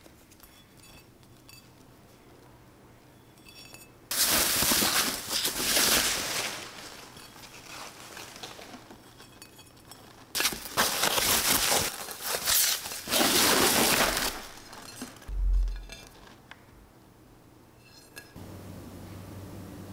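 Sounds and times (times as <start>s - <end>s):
packaging crumpling and rustling: 4.1s - 9.0s, 10.4s - 15.3s.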